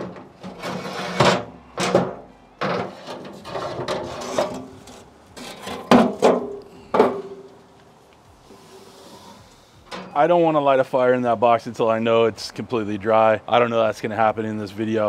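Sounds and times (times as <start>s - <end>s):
metal grates scraping: 0.0s - 7.5s.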